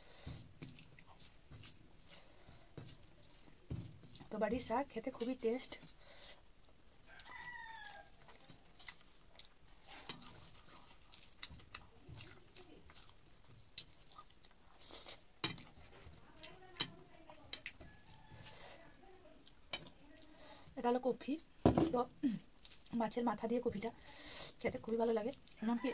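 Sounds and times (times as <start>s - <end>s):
person chewing and lip-smacking: 6.7s - 15.8s.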